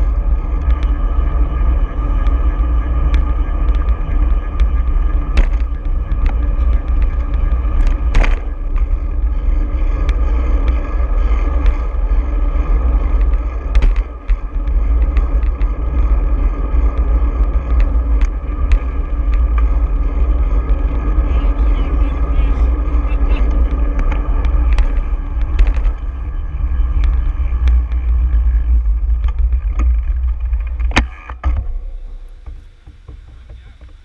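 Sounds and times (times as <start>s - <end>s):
road rattle: 0.0s - 34.0s
wind rumble on microphone: 0.0s - 34.0s
sharp knocks from bumps: 4.5s - 8.9s, 13.2s - 15.8s.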